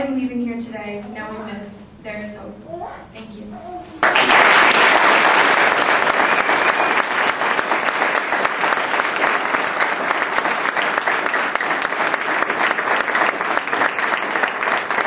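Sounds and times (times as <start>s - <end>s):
audience applauding: 4.0s - 15.0s.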